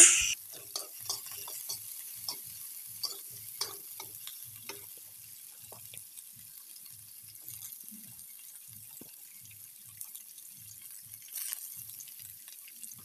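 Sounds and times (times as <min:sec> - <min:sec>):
metal spatula scraping pan: 0:00.0 - 0:04.8
vegetables sizzling in a wok: 0:00.0 - 0:13.0.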